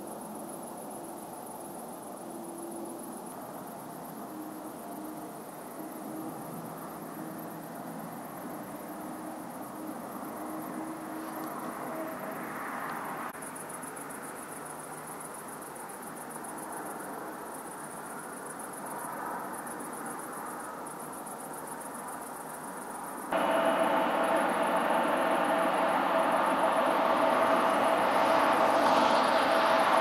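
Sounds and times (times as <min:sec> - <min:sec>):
crickets chirping: 0:00.0 - 0:30.0
distant rumble: 0:23.4 - 0:30.0.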